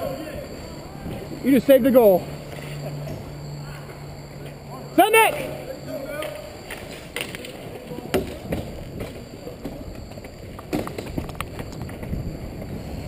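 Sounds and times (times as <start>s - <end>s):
inline skate wheels rolling: 5.3s - 13.0s.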